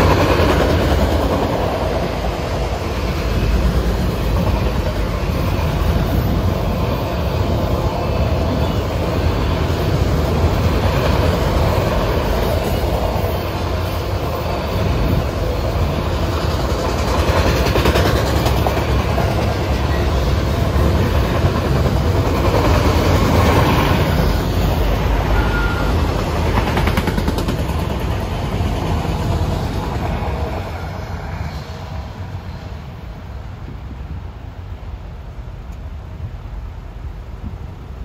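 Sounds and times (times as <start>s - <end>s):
freight train wheels rumbling on rails: 0.0s - 38.0s.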